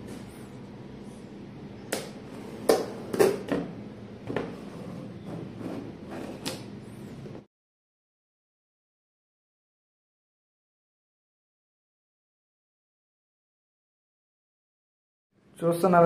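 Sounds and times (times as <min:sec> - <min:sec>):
steady low hum: 0:00.0 - 0:07.5.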